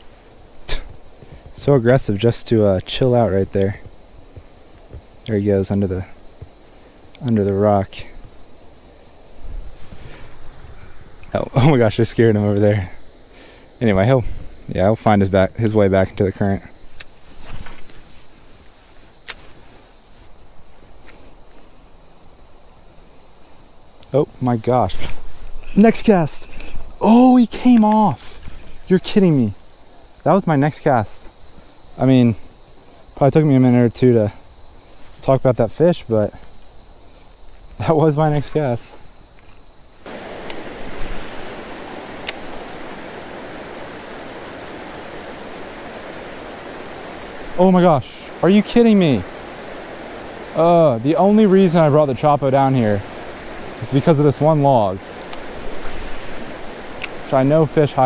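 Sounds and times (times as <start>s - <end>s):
insects buzzing drone: 0.0s - 58.0s
faint clicks: 16.9s - 18.0s, 19.2s - 19.5s, 26.5s - 27.0s, 40.4s - 41.4s, 42.2s - 42.5s, 55.2s - 57.3s
river water rushing over rocks: 40.0s - 58.0s
sharp click: 42.2s - 42.4s.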